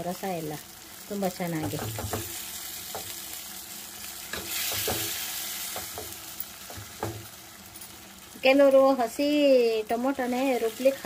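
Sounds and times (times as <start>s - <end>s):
onion and tomato sizzling in oil: 0.0s - 11.0s
spoon knocking against pan: 1.6s - 3.2s, 4.3s - 5.1s, 5.7s - 7.3s.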